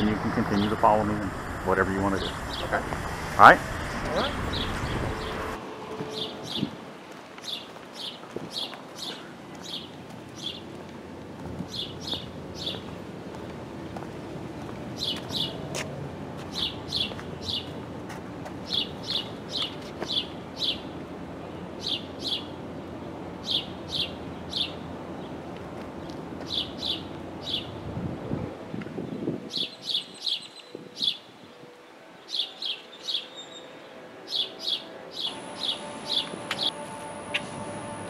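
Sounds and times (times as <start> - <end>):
bird chirping: 0.0 - 6.8, 7.4 - 10.7, 11.7 - 12.9, 15.0 - 15.6, 16.5 - 17.8, 18.7 - 20.9, 29.5 - 31.3, 32.2 - 38.0
low outdoor background noise: 0.0 - 38.0.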